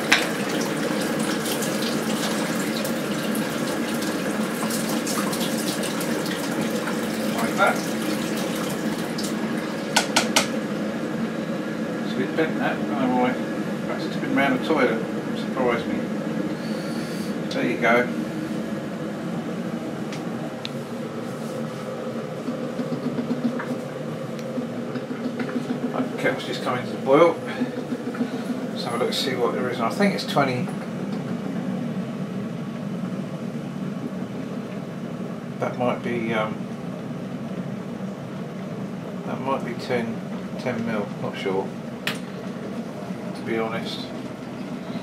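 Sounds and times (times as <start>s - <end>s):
tap water running into sink: 0.0s - 10.5s
kettle rushing rumble: 0.0s - 45.0s.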